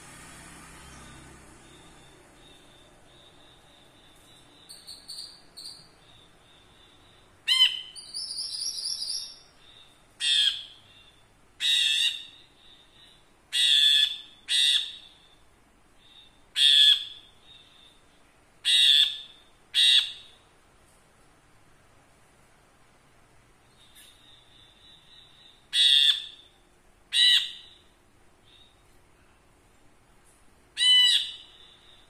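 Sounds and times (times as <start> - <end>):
bird chirping and calling: 2.4 - 15.3, 16.0 - 17.9, 18.6 - 20.4, 23.7 - 26.5, 27.1 - 27.9, 30.8 - 32.0.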